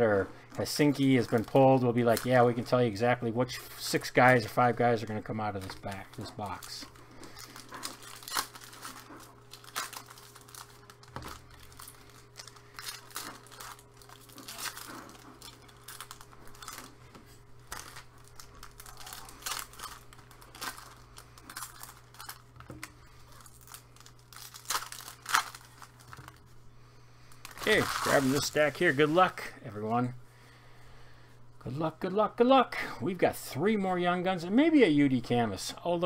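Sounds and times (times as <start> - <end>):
faint steady hum: 0.0 - 36.0
cards and packaging crinkling: 0.5 - 26.5, 27.2 - 29.5.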